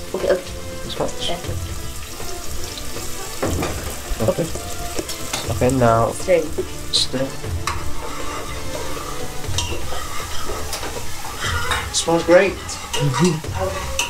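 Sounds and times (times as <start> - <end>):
curry sizzling in a pan: 0.0 - 14.0
spoon scraping a pan: 2.0 - 5.5, 6.5 - 14.0.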